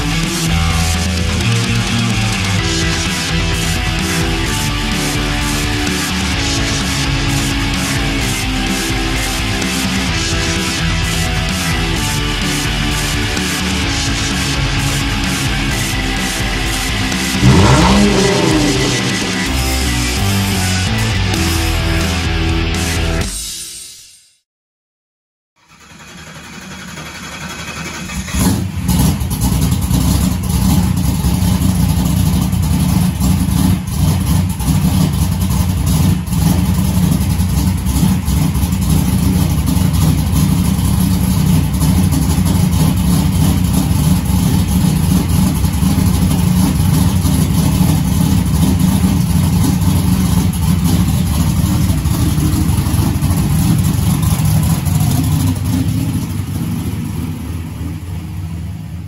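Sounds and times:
car engine running: 0:00.0 - 0:22.5, 0:25.8 - 0:59.0.

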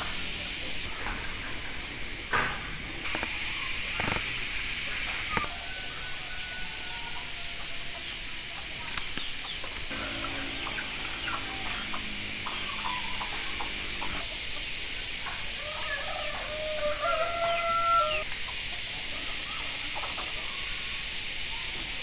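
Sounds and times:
chickens clucking: 0:00.0 - 0:22.0
steady high hiss: 0:00.0 - 0:22.0
rooster crowing: 0:05.3 - 0:08.0, 0:09.9 - 0:14.3, 0:15.4 - 0:18.3.

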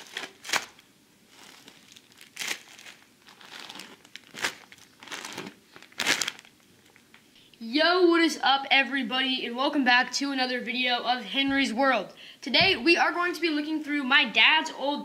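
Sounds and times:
plastic bags crinkling: 0:00.0 - 0:07.2.

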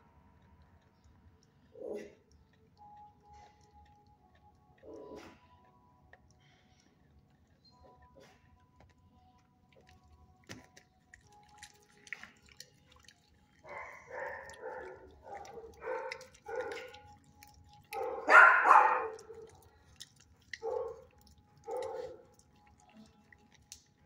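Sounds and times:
dog barking: 0:13.7 - 0:17.0, 0:17.9 - 0:19.6, 0:20.6 - 0:22.3.

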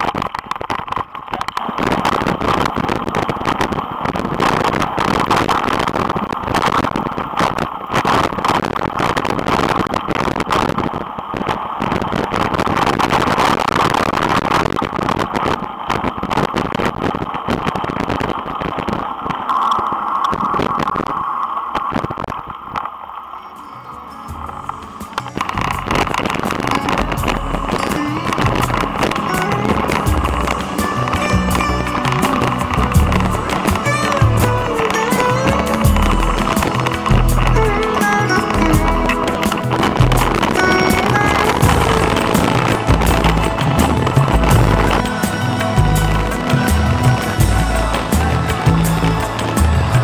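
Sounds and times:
wind on microphone: 0:24.3 - 0:50.0.

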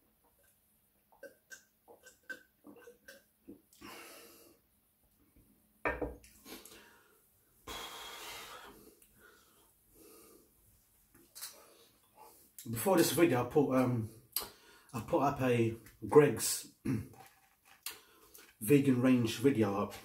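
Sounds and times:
man gulping water: 0:01.1 - 0:04.0
breathing out: 0:06.4 - 0:10.5.

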